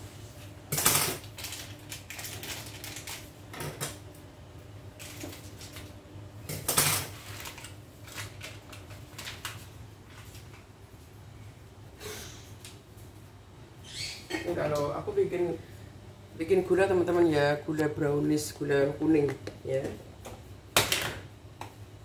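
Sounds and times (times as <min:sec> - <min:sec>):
coffee sachet rustling and tearing: 0:01.2 - 0:03.3, 0:07.2 - 0:10.6.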